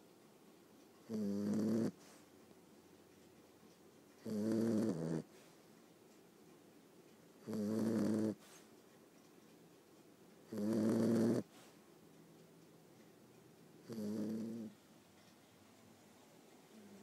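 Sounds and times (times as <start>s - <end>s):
puppy snoring: 1.0s - 2.3s, 4.2s - 5.6s, 7.4s - 8.7s, 10.4s - 11.8s, 13.8s - 14.8s, 16.7s - 17.0s.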